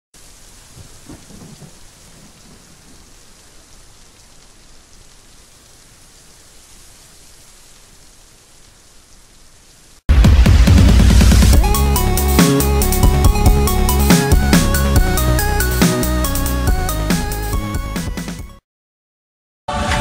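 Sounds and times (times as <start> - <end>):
steady rain: 0.2 - 17.7
low thunder rumble: 0.5 - 3.5.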